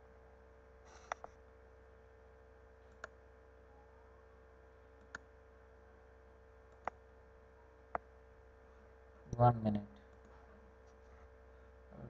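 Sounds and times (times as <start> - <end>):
faint electrical hum: 0.0 - 12.0
computer mouse clicks: 0.9 - 1.4, 2.9 - 3.2, 5.0 - 5.3, 6.7 - 7.0.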